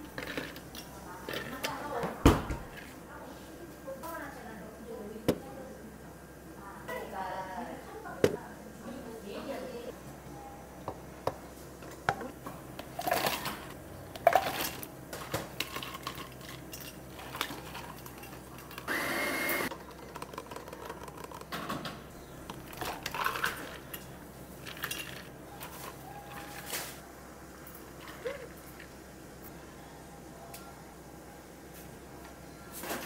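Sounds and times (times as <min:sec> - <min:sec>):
ice cubes clattering into cups: 0:13.0 - 0:14.9, 0:22.6 - 0:24.0, 0:24.6 - 0:25.3
milk pouring into cup: 0:19.7 - 0:21.5.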